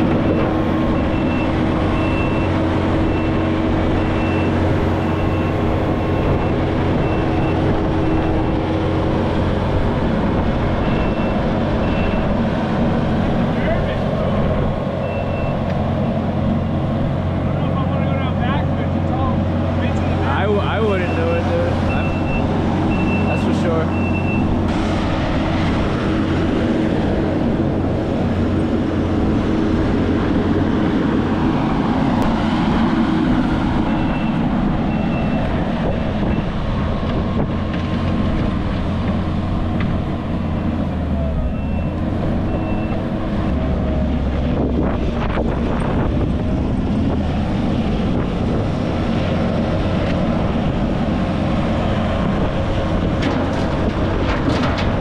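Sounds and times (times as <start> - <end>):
diesel engine running: 0.0 - 55.0
back-up alarm beeps: 0.9 - 8.4, 10.8 - 12.4, 15.0 - 15.6, 21.0 - 24.5, 33.8 - 36.5.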